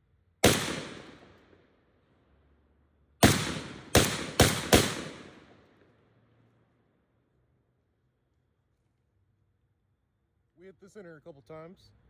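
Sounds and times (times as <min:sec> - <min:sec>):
rifle single shots: 0:00.4 - 0:01.6, 0:03.2 - 0:05.8.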